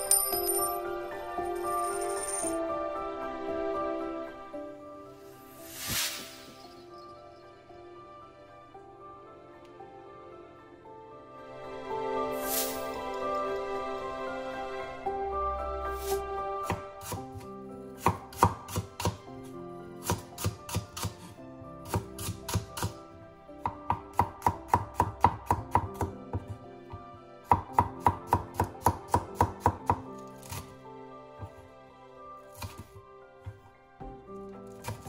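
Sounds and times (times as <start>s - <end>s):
soft background music: 0.0s - 35.0s
knife chopping on wooden board: 18.0s - 19.2s, 20.0s - 21.3s, 32.6s - 33.6s.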